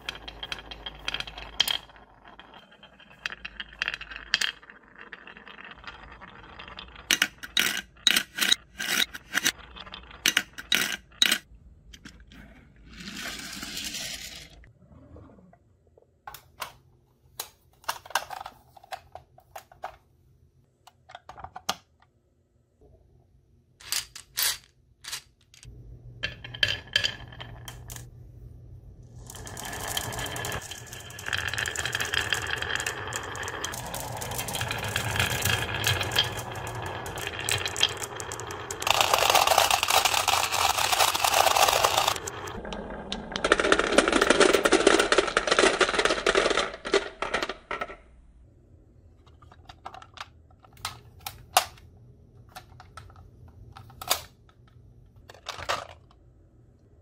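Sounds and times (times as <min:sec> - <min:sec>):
glass marbles clinking: 0:00.0 - 0:11.5, 0:29.2 - 0:42.6
marbles rolling down wooden slope: 0:00.0 - 0:11.5, 0:12.9 - 0:14.7, 0:25.6 - 0:28.1, 0:29.0 - 0:48.1
marbles clicking in plastic bin: 0:00.0 - 0:12.1, 0:29.2 - 0:48.0.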